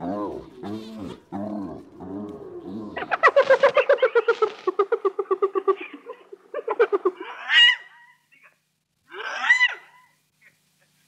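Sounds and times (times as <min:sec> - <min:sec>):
hyena giggling calls: 0:00.4 - 0:10.6.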